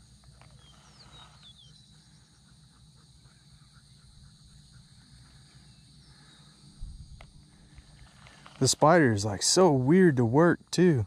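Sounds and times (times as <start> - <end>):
high falling bird chirps: 0.5 - 2.6
wind rumble on microphone: 6.8 - 7.3.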